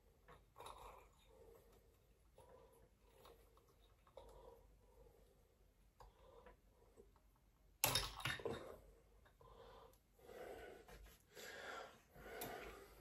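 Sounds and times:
man breathing: 0:09.0 - 0:13.0.

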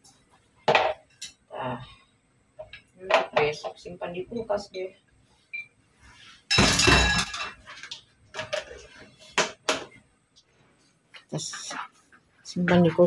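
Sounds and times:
ceramic plate clattering against dishes: 0:06.5 - 0:07.7.

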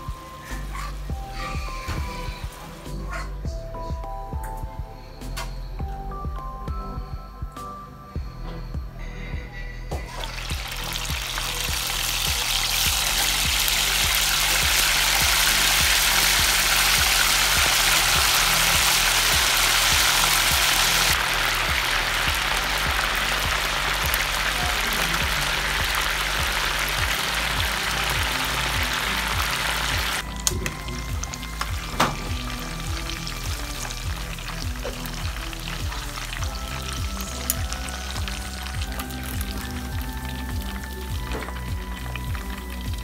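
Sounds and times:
background music with beat: 0:00.0 - 0:43.0
chicken deep-frying in oil: 0:10.0 - 0:43.0.

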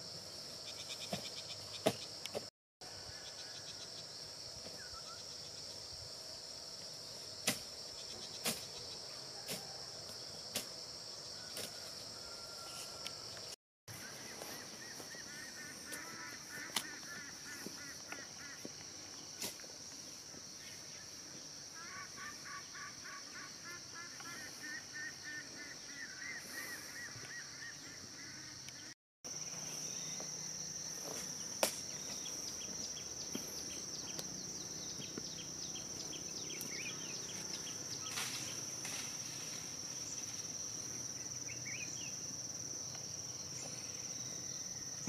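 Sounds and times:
high-pitched insect drone: 0:19.9 - 0:45.0.

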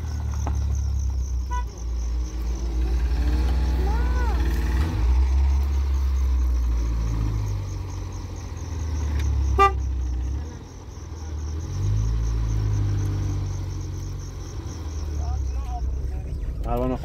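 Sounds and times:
car engine running: 0:00.0 - 0:17.0
car horn toot: 0:01.4 - 0:01.9, 0:09.4 - 0:10.1.

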